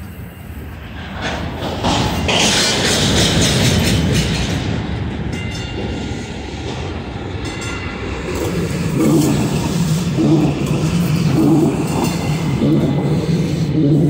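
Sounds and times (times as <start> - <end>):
train wheels rumbling on rails: 0.0 - 14.0.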